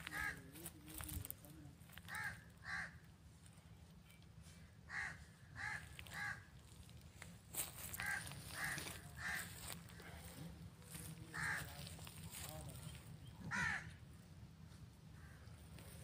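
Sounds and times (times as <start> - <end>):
crow cawing: 0.0 - 0.7, 2.0 - 3.1, 4.6 - 6.7, 7.6 - 10.3, 10.9 - 12.5, 13.4 - 14.1, 15.1 - 15.9
low steady background noise: 0.0 - 16.0.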